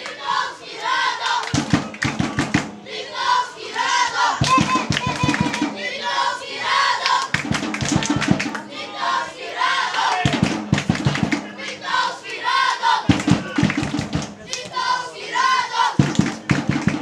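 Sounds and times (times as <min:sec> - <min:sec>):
crowd chanting in unison: 0:00.0 - 0:17.0
rhythmic drum beats: 0:01.4 - 0:03.0, 0:03.7 - 0:06.3, 0:07.0 - 0:08.8, 0:09.9 - 0:12.2, 0:13.0 - 0:14.8, 0:15.4 - 0:17.0.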